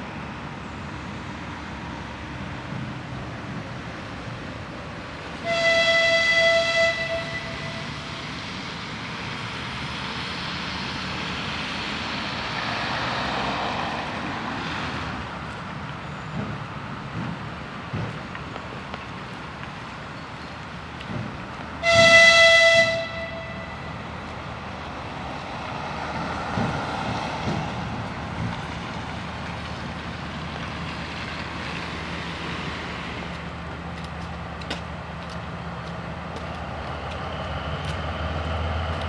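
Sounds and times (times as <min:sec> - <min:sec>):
diesel locomotive running: 0:00.0 - 0:39.0
rushing noise from locomotive: 0:00.0 - 0:39.0
locomotive horn blast: 0:05.4 - 0:08.0, 0:21.8 - 0:23.9.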